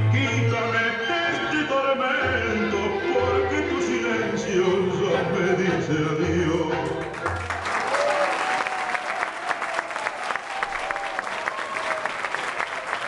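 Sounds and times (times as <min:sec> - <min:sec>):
music: 0:00.0 - 0:07.9
audience applause: 0:07.1 - 0:13.0.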